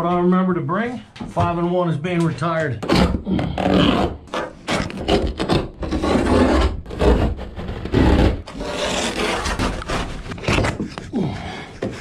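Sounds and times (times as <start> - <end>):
blade sawing through carpet: 2.9 - 11.0.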